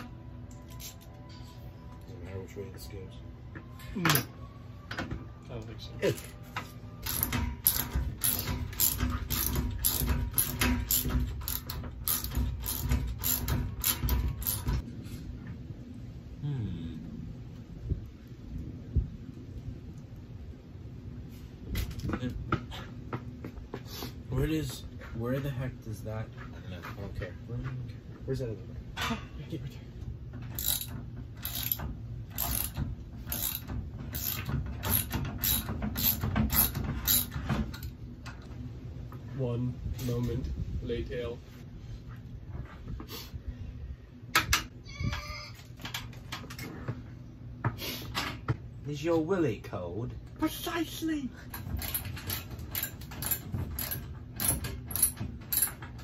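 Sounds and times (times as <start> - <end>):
ratchet strap clicking: 7.0 - 14.8, 30.6 - 37.9, 51.6 - 55.8.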